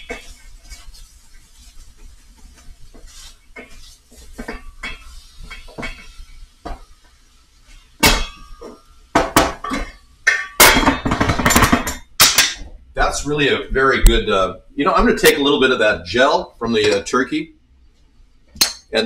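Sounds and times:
utensil scraping a steel pan: 0:00.0 - 0:06.8.

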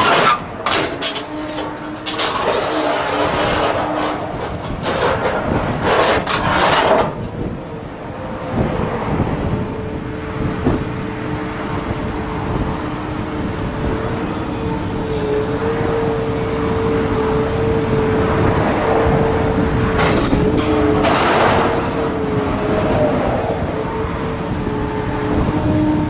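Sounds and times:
metal crunching and grinding: 0:00.0 - 0:07.4, 0:19.8 - 0:22.5
excavator engine and hydraulics whine: 0:00.0 - 0:26.0.

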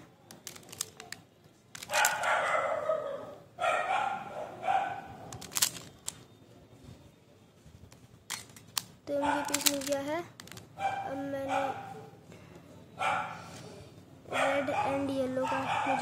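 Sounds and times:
plastic puzzle clicking: 0:00.2 - 0:02.3, 0:05.3 - 0:06.2, 0:08.3 - 0:10.7
dog barking: 0:01.9 - 0:05.2, 0:09.2 - 0:09.5, 0:10.8 - 0:12.2, 0:13.0 - 0:13.4, 0:14.3 - 0:16.0.

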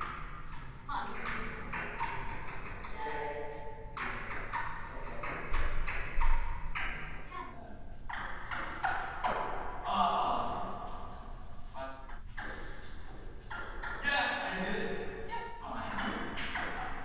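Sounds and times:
table tennis ball tapping: 0:00.0 - 0:07.3.

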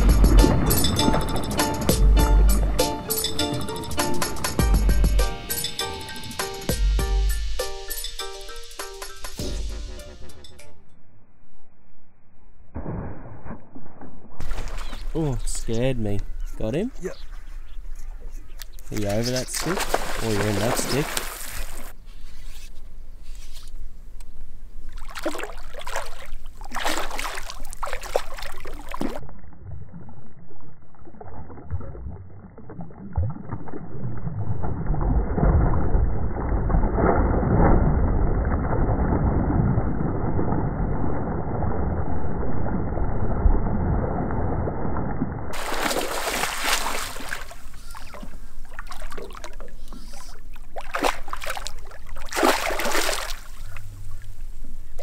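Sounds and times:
fish thrashing and splashing: 0:14.4 - 0:15.2, 0:19.5 - 0:22.0, 0:24.9 - 0:29.2, 0:45.6 - 0:53.9
water sloshing: 0:14.4 - 0:16.6, 0:17.3 - 0:22.0, 0:24.9 - 0:29.2, 0:45.6 - 0:55.0.

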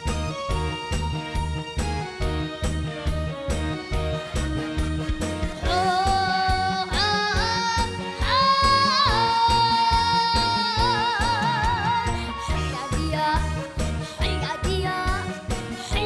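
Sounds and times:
trot song with steady beat: 0:00.0 - 0:16.0
boy singing into microphone: 0:05.6 - 0:16.0.

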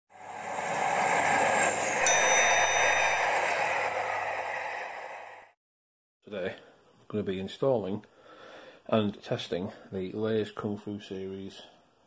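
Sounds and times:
train passing: 0:00.1 - 0:05.5
high squeal sliding down: 0:00.6 - 0:05.4
thin whistling tones: 0:01.4 - 0:05.3.

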